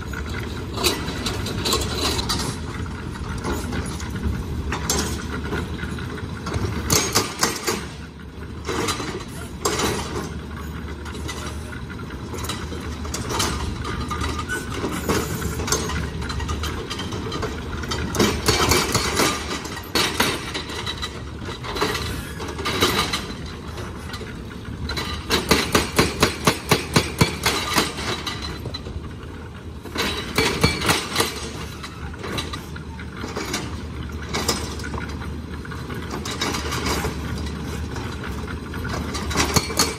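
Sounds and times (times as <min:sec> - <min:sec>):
engine running: 0:00.0 - 0:39.9
hydraulic breaker hammering: 0:25.0 - 0:28.4, 0:30.0 - 0:31.6, 0:39.1 - 0:39.9.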